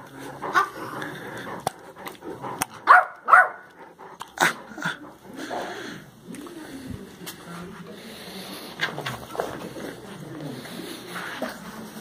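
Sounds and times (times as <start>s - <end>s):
dog barking: 2.8s - 3.7s.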